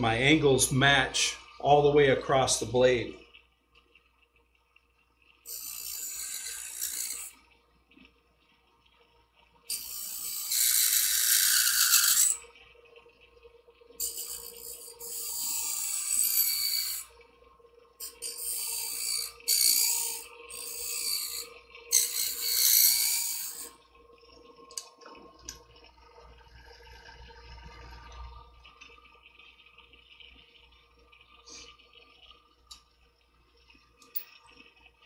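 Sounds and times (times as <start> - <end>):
blade grinding on sharpener wheel: 5.5 - 7.4, 9.7 - 12.4, 14.0 - 17.1, 18.0 - 23.7
faint clicks: 28.0 - 35.0.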